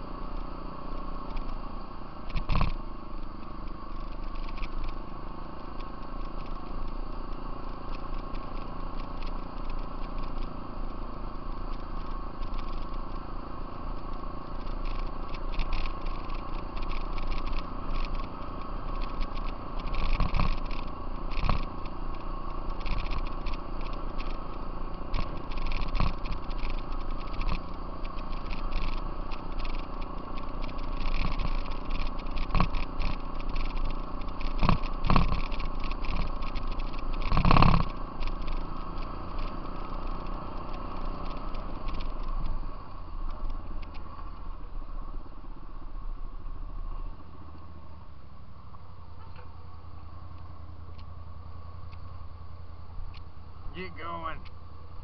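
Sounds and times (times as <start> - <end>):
off-road vehicle engine drone: 0.0 - 55.0
vehicle frame rattling and knocking: 14.6 - 40.3.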